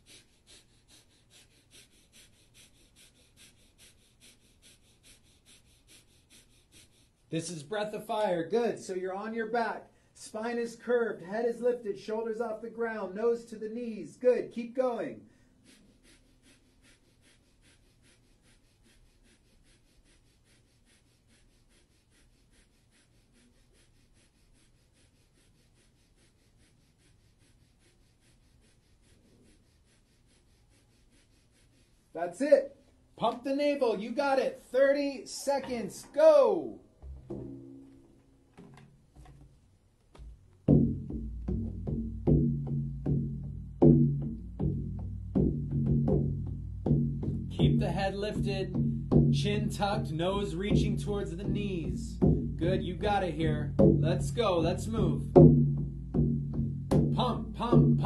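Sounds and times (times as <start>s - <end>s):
forceful nasal exhales: 0.0s - 7.3s, 15.3s - 32.1s.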